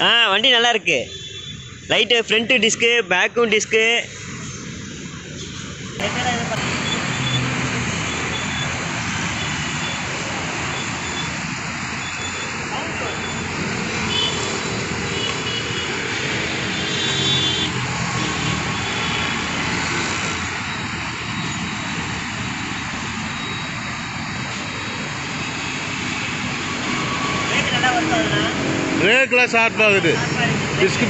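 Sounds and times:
traffic rushing haze: 0.0s - 31.0s
passing vehicle engines: 1.7s - 31.0s.

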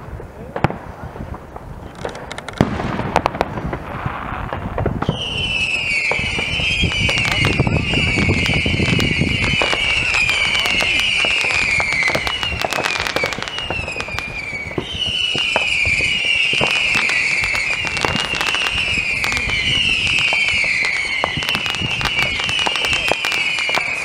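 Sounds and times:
fireworks popping and crackling: 0.0s - 24.0s
high falling whistle: 5.0s - 24.0s.

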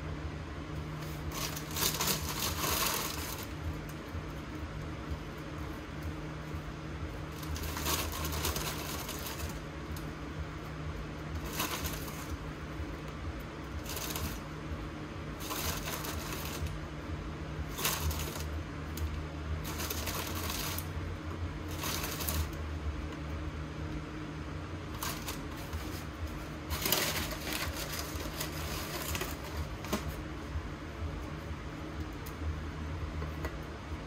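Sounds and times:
low hum: 0.0s - 34.0s
plastic wrapper crinkling: 1.0s - 3.6s, 7.3s - 9.6s, 19.6s - 20.9s, 25.0s - 30.2s.

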